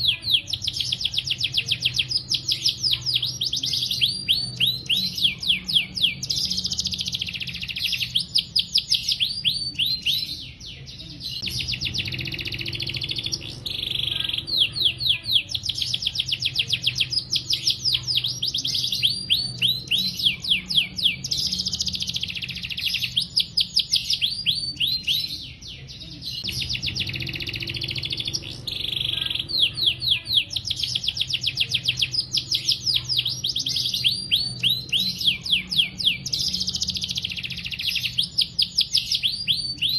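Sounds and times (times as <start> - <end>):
canary singing trills: 0.0 - 39.9
low hum: 11.4 - 15.0, 26.5 - 30.2.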